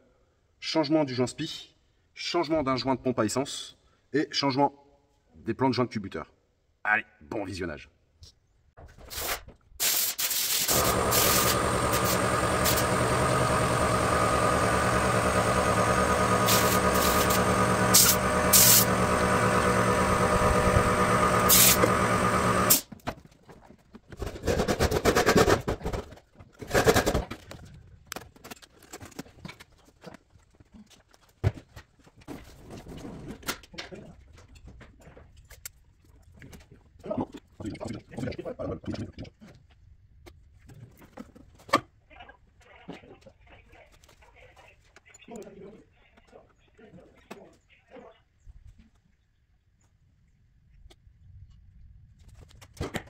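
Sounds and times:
car engine running: 10.7s - 22.8s.

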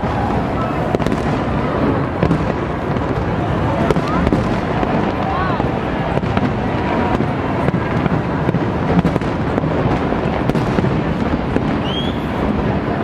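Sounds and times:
fireworks bangs and crackling: 0.0s - 13.0s.

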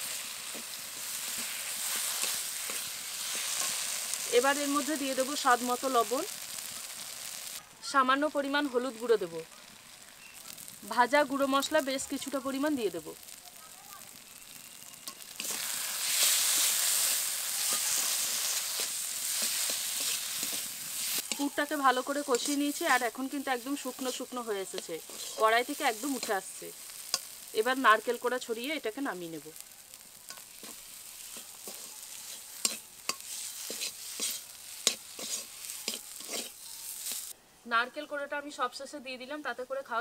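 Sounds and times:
food sizzling in oil: 0.0s - 37.4s
spoon scraping pan: 15.0s - 21.6s, 22.3s - 23.1s, 23.9s - 27.5s, 30.3s - 37.3s.

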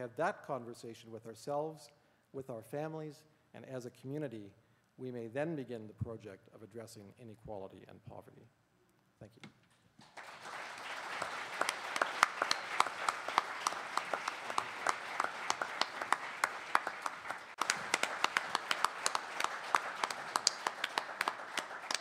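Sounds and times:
audience applauding: 10.0s - 22.0s.

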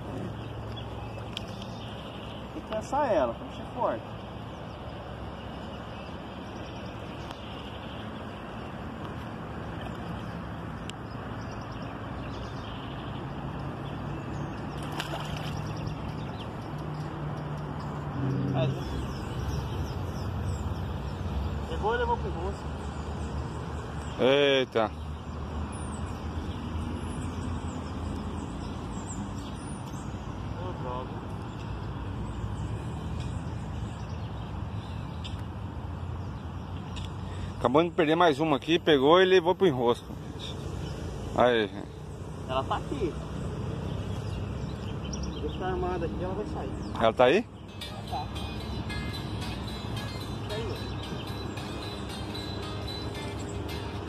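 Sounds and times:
river water: 0.0s - 54.0s
wind: 0.0s - 54.0s.

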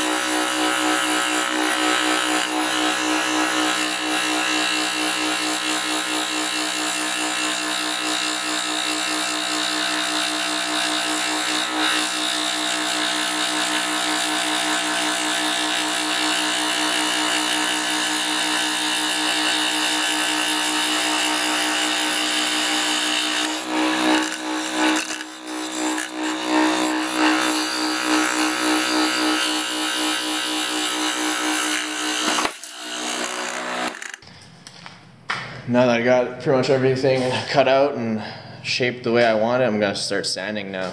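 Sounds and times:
scroll saw cutting plywood: 0.0s - 34.2s.

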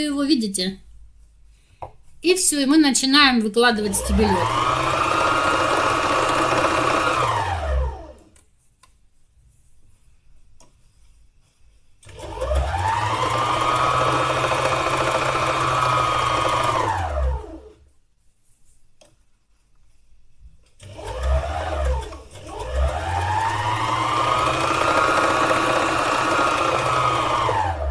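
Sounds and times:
needle-felting machine running: 3.8s - 8.2s, 12.0s - 17.8s, 20.8s - 27.9s.

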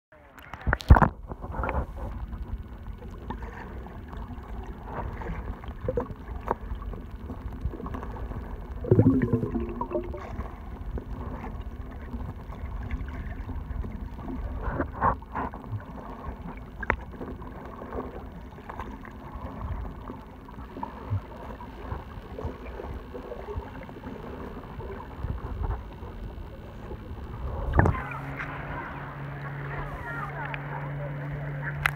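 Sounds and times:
low underwater rumble: 0.5s - 31.9s
bubbles gurgling: 3.3s - 14.8s.

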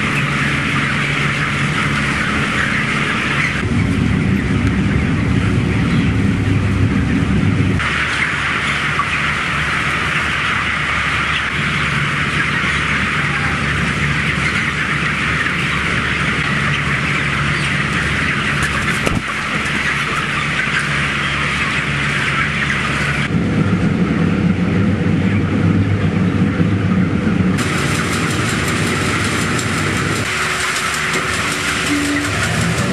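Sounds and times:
flock of chickens calling: 0.0s - 3.7s, 7.0s - 23.3s, 27.6s - 32.9s
ventilation fans humming: 0.0s - 32.9s.

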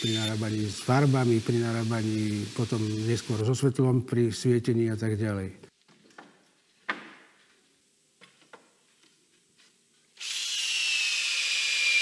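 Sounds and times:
power drill driving screw into wood: 10.2s - 12.0s.

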